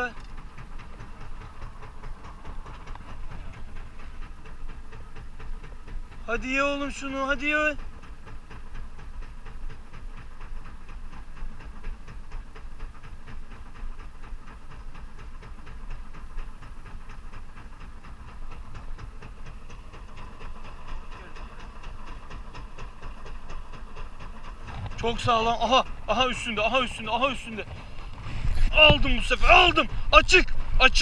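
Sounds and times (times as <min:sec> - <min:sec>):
boat engine rumble: 0:00.0 - 0:31.0.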